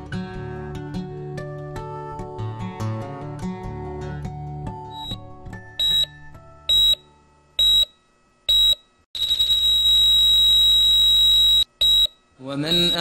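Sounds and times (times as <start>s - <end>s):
guitar music: 0.0s - 6.7s
medical device beeping: 4.9s - 7.0s, 7.6s - 13.0s.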